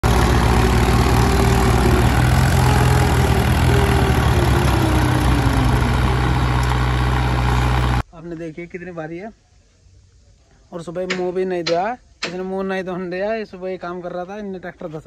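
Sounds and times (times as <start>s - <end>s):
tractor diesel engine under load: 0.0s - 8.0s.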